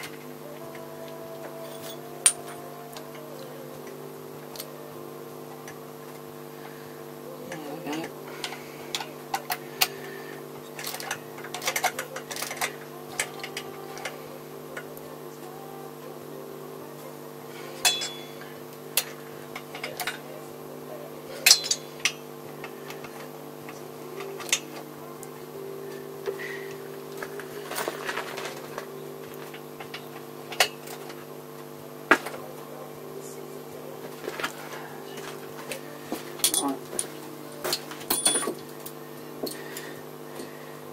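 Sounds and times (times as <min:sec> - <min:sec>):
steady low hum: 0:00.0 - 0:40.9
clicks and metallic knocks: 0:36.2 - 0:38.9.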